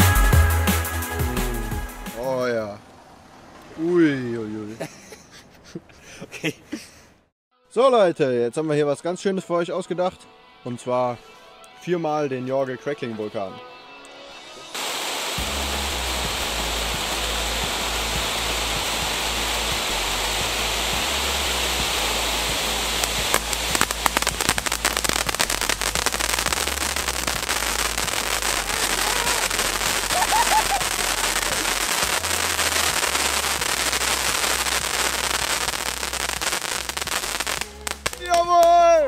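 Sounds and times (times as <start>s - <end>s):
fireworks fountain hissing sparks: 14.7s - 38.9s
dense crackling: 14.8s - 38.7s.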